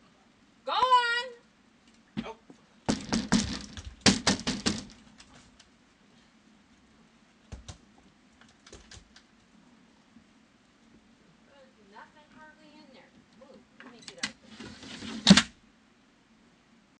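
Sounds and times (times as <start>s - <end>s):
bears clattering on wood: 2.9s - 5.6s.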